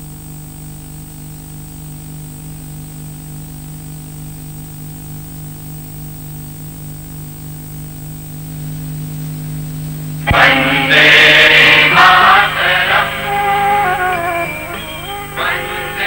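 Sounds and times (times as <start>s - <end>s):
electrical hum and hiss: 0.0s - 16.0s
held tones: 10.2s - 16.0s.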